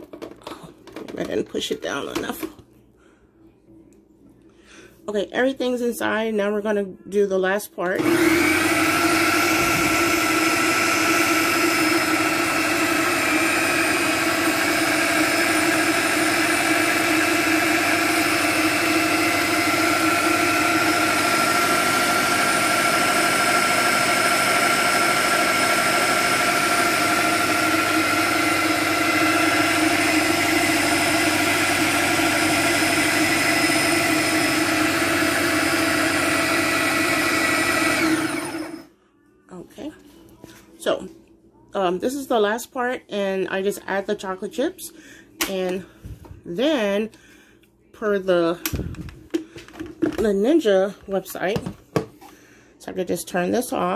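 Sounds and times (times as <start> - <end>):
blender motor whining: 8.0 - 38.9.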